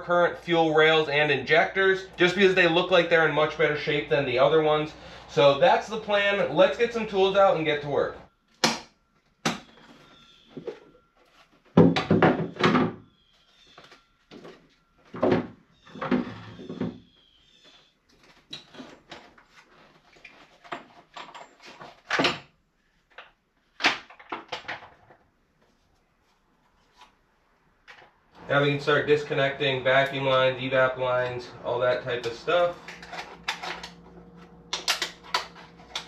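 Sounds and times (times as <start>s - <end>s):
tools and metal parts clanking: 18.2s - 22.5s, 32.1s - 36.0s.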